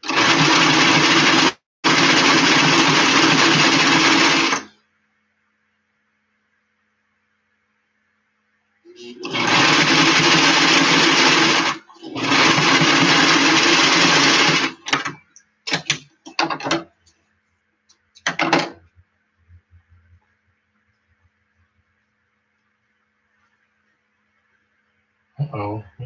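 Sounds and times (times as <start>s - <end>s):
sewing machine stitching: 0.0s - 4.7s, 9.0s - 16.8s.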